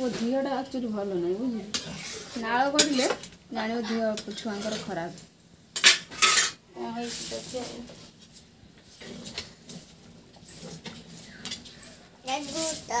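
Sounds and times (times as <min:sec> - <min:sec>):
metal spatula scraping a pan: 0:01.4 - 0:05.2, 0:05.8 - 0:13.0.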